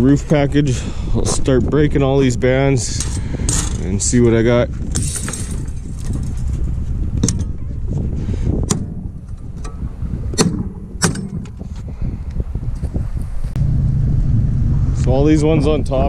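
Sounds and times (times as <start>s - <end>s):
steel straps snapping: 8.6s - 11.6s.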